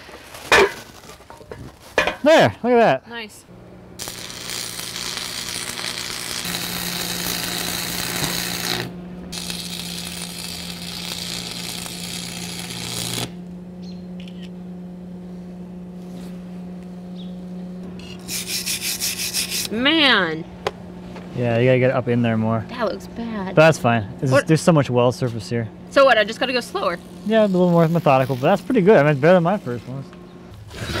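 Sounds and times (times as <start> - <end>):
steady low hum: 0.0 - 30.8
welding arc crackling: 3.9 - 13.5, 26.0 - 29.8.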